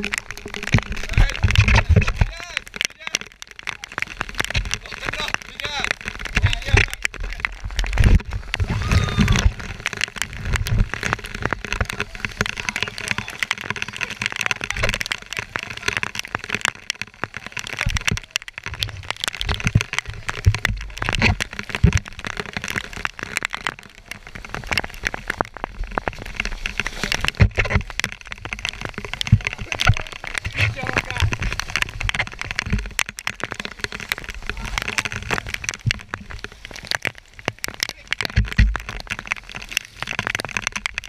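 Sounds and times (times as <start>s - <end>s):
heavy rain hitting camera: 0.0s - 41.0s
voices: 12.0s - 16.2s.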